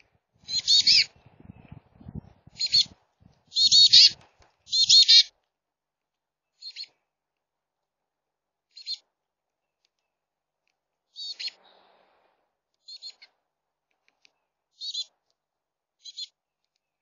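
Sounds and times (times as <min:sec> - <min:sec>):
chickadee calling: 0:00.4 - 0:01.2, 0:02.5 - 0:05.3, 0:06.6 - 0:06.9, 0:08.8 - 0:09.0, 0:11.2 - 0:11.6, 0:12.8 - 0:13.3, 0:14.8 - 0:15.1, 0:16.0 - 0:16.3.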